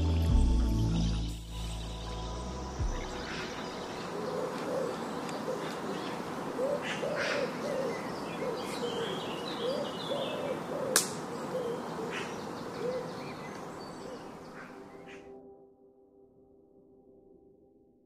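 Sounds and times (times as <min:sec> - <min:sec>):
sharp click: 0:10.9 - 0:11.2.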